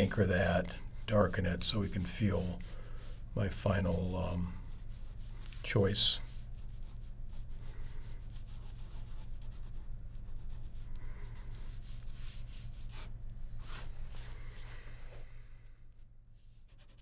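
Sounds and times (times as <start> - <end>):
ballpoint pen scratching paper: 6.6 - 11.0.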